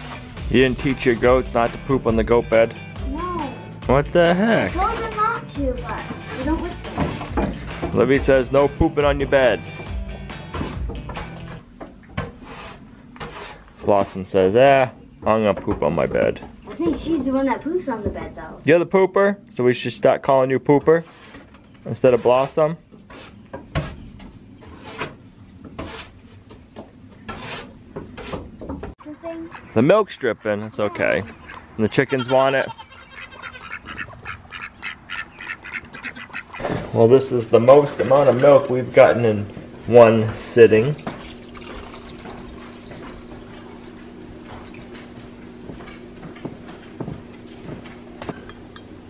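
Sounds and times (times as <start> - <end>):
milk pouring into a glass jar: 41.0 - 42.8.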